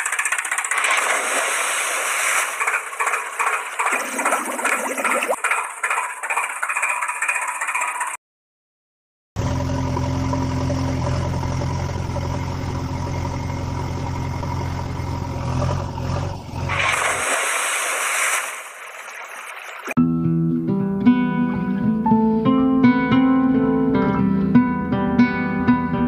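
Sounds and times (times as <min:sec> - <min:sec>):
vehicle engine idling: 0:00.0 - 0:00.8, 0:09.4 - 0:16.7
burst of hiss: 0:16.7 - 0:18.8.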